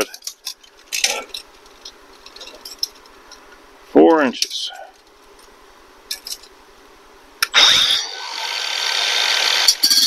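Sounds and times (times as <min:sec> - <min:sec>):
angle grinder grinding metal: 0:07.5 - 0:10.0.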